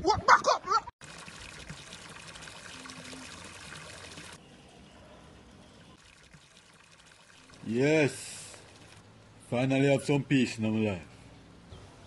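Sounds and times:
water pouring into a pool: 1.0s - 4.4s, 5.8s - 9.1s.

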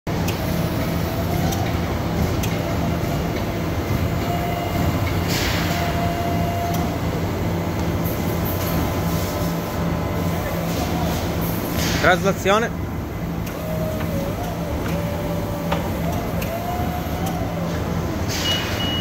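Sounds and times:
electric forklift humming: 0.1s - 19.0s.

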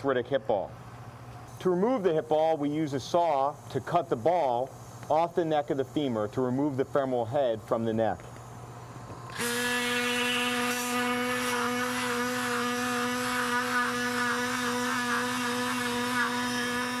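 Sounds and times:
bone saw motor whine: 9.3s - 17.0s.

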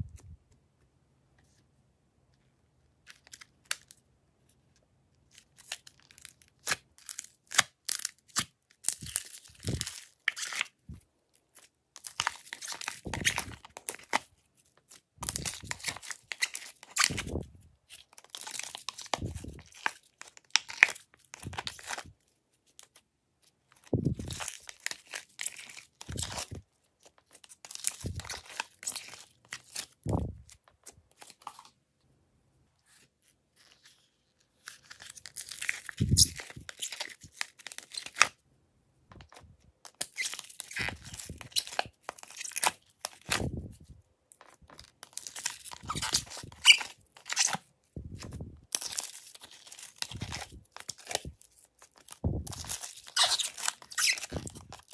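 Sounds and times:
slime crackling and tearing: 5.4s - 10.8s, 14.9s - 22.1s, 34.6s - 38.4s, 39.9s - 43.6s, 44.5s - 54.9s
plastic tub crinkling: 44.4s - 54.9s.

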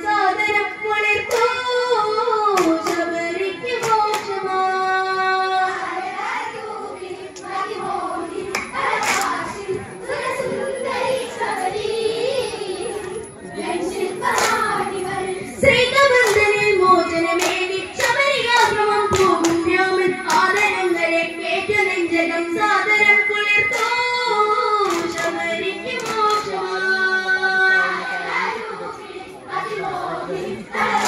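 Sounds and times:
girl singing into microphone: 0.0s - 29.8s
hand claps: 1.3s - 1.6s, 2.6s - 3.1s, 3.8s - 4.4s, 8.5s - 9.4s, 14.3s - 14.7s, 16.2s - 16.6s, 17.4s - 20.8s, 23.7s - 24.1s, 24.8s - 26.6s
group singing folk song: 5.5s - 13.0s, 13.6s - 16.5s, 24.8s - 31.0s.

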